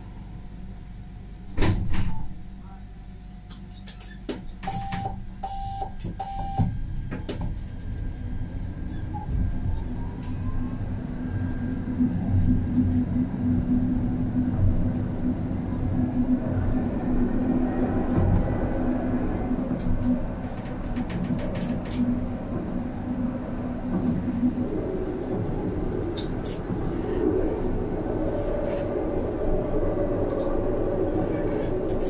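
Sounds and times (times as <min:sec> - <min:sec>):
tram motor hum: 0:00.0 - 0:32.0
tram door warning beeps: 0:04.6 - 0:06.8
tram wheels on rails: 0:06.0 - 0:32.0.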